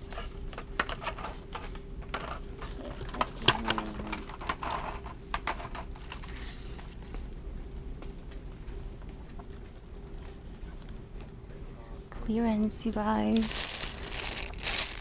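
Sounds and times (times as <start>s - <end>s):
shopping cart rattling: 13.4s - 15.0s.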